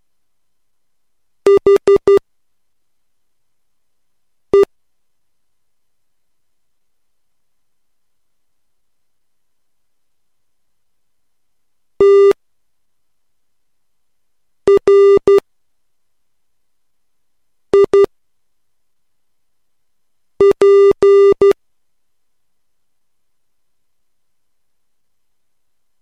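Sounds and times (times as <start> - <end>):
morse code tone: 12.0 - 12.4, 14.7 - 15.4, 17.8 - 18.1, 20.4 - 21.6.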